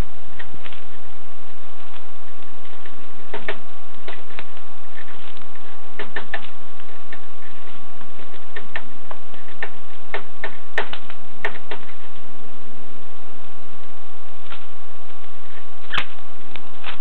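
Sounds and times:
bird bill tapping on wood: 0:06.0 - 0:06.5, 0:08.3 - 0:12.0.

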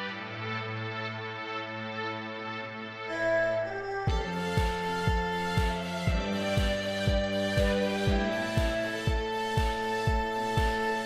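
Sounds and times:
instrumental background music: 0:00.0 - 0:11.0
soft low beat: 0:04.1 - 0:11.0.

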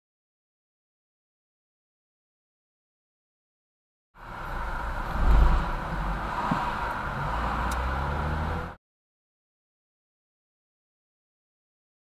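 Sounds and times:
car cabin road and engine rumble: 0:04.2 - 0:08.8.

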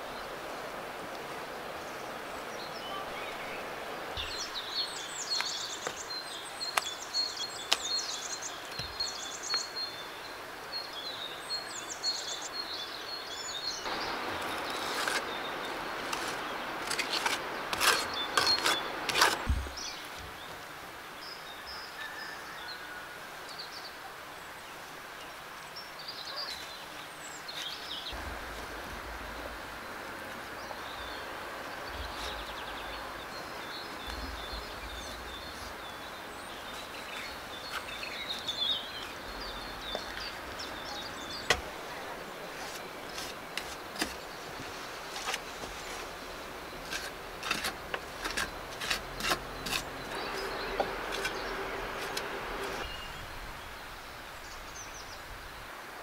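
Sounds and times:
outdoor ambience: 0:00.0 - 0:56.0
small birds chirping: 0:01.8 - 0:22.3, 0:23.5 - 0:55.7
scraping and slapping wet clay: 0:16.0 - 0:19.7, 0:46.8 - 0:52.8.

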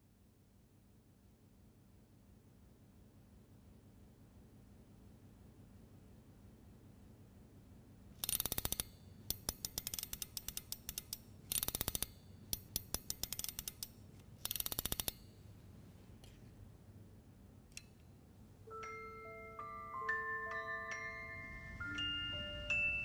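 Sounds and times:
music box ratchet clicking: 0:08.2 - 0:15.3.

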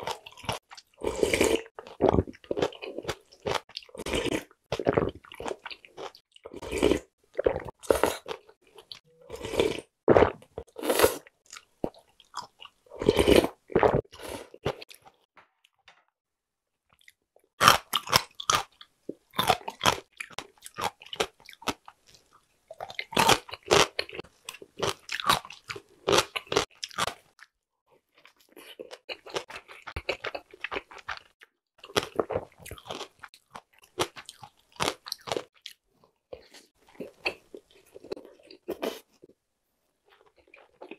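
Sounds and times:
chewing: 0:28.2 - 0:39.3.

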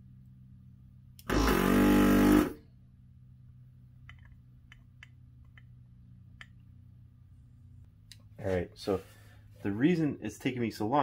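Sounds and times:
vacuum pump humming: 0:01.2 - 0:02.6.

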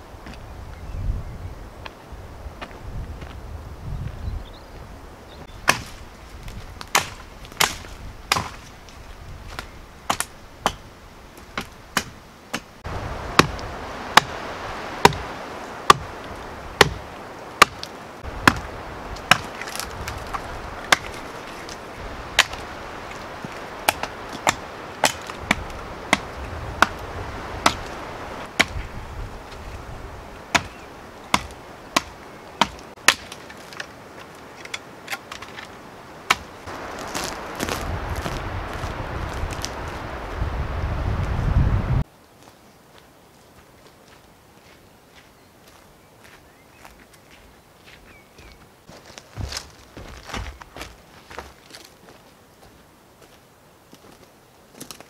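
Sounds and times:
hatchet chopping wood: 0:05.6 - 0:06.0, 0:06.8 - 0:08.7, 0:10.1 - 0:10.9, 0:11.6 - 0:12.7, 0:13.4 - 0:14.4, 0:15.0 - 0:16.1, 0:16.8 - 0:21.7, 0:22.3 - 0:22.7, 0:23.8 - 0:27.0, 0:27.6 - 0:28.9, 0:30.5 - 0:33.9, 0:36.3 - 0:36.5.

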